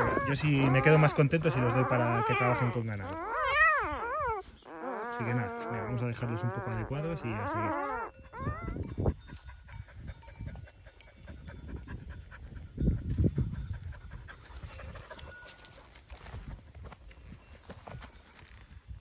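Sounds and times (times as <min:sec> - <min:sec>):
puppy whining: 0:00.0 - 0:12.4
dog panting: 0:00.0 - 0:15.9.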